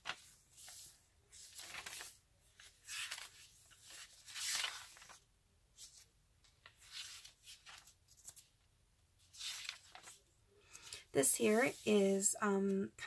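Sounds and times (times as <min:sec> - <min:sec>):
paper pages rustling: 0:00.0 - 0:12.2.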